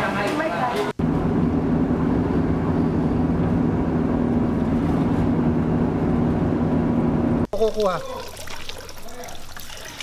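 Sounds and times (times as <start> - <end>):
vehicle engine and road noise: 0.0 - 7.5.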